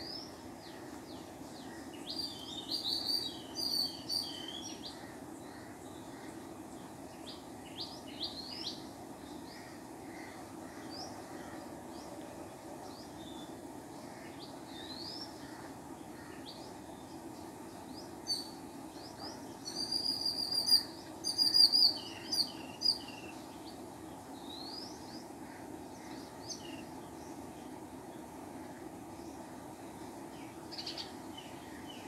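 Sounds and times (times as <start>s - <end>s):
sparrows chirping: 0.0s - 6.1s, 14.2s - 25.4s, 30.2s - 32.0s
low background hum: 0.0s - 32.0s.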